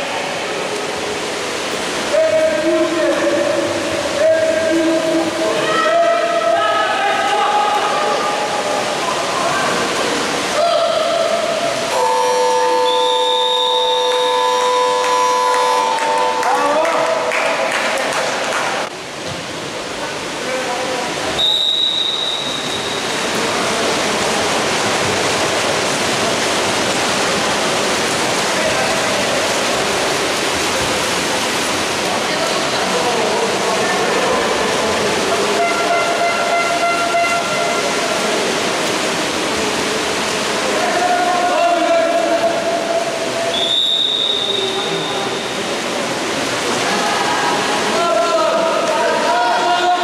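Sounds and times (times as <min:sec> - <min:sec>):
crowd voices echoing: 0:00.0 - 0:18.9, 0:20.5 - 0:50.0
splashing water: 0:00.0 - 0:50.0
referee's whistle: 0:12.7 - 0:15.7, 0:21.4 - 0:23.1, 0:43.5 - 0:45.6.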